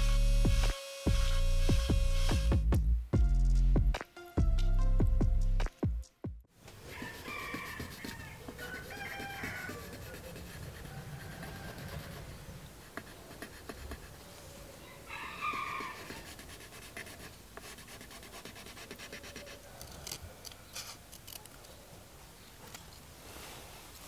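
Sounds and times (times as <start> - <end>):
pencil scratching on paper: 6.9 - 14.2, 15.4 - 19.8
chicken call: 7.0 - 10.3.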